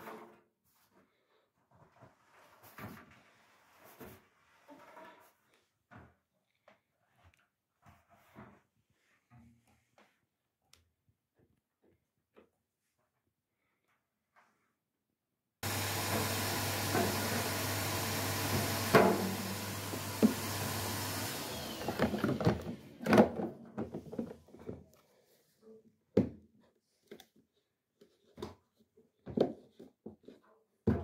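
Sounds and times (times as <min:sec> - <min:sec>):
vacuum cleaner humming: 0:15.6 - 0:23.5.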